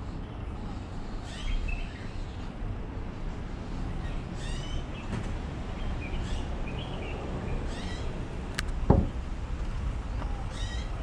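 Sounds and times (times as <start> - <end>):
steady low rumble: 0.0 - 11.0
birds chirping: 5.7 - 8.2
dull thump: 8.9 - 9.3.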